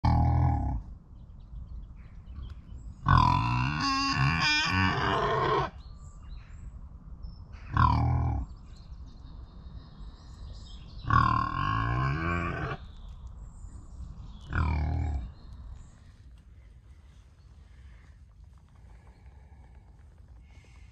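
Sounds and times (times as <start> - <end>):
animal calling: 3.1 - 5.8, 11.1 - 12.8.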